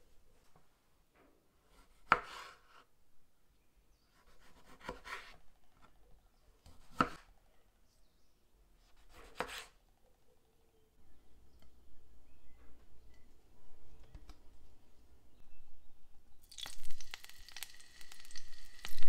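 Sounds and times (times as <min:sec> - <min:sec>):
knife slicing tomatoes: 0:01.7 - 0:02.8, 0:04.1 - 0:05.4, 0:06.6 - 0:07.3, 0:08.8 - 0:09.8.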